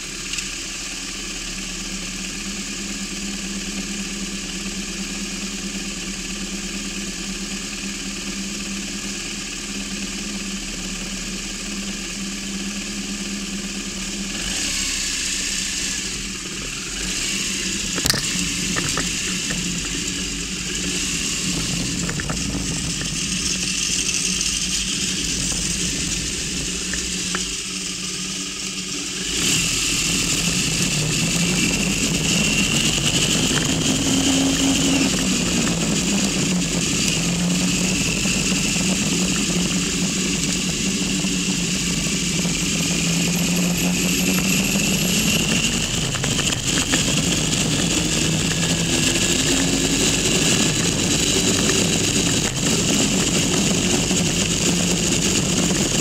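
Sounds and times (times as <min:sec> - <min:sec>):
motorcycle engine: 0:00.0 - 0:56.0
road and wind noise: 0:14.4 - 0:56.0.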